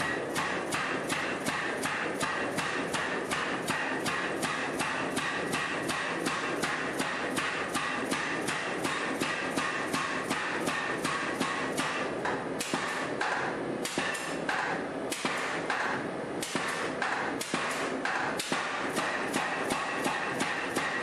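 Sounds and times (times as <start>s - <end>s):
power hammer striking hot metal: 0.0s - 21.0s.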